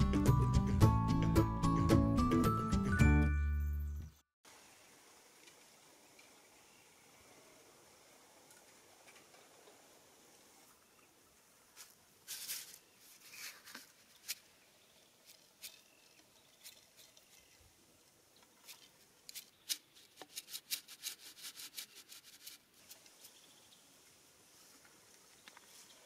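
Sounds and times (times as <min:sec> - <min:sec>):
grain shaken onto wooden plank: 0:11.8 - 0:14.5, 0:18.6 - 0:23.1.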